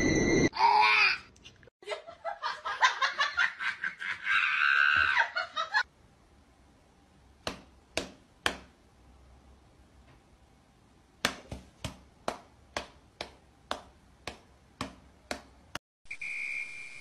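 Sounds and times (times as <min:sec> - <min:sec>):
person laughing: 0:01.8 - 0:05.8.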